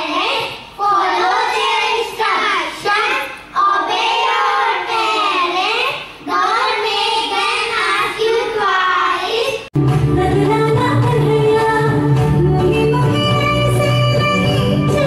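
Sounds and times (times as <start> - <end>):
children singing into microphones: 0.0 - 9.7.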